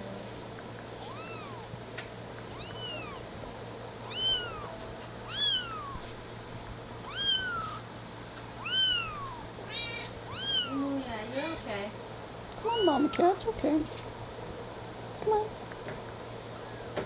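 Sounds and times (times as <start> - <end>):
kitten mewing: 1.0 - 1.7, 2.5 - 3.2, 4.1 - 6.0, 7.0 - 7.8, 8.6 - 10.8, 12.6 - 13.2.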